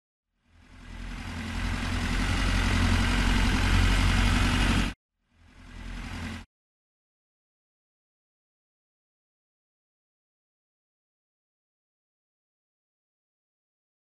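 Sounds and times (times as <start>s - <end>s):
tractor engine running: 0.5s - 6.4s.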